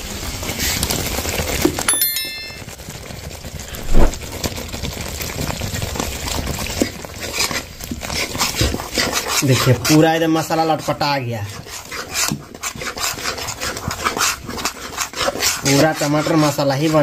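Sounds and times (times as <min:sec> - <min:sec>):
bell-like chime: 0:01.9 - 0:02.8
paste sizzling in hot oil: 0:04.4 - 0:17.0
metal spatula scraping pan: 0:07.0 - 0:17.0.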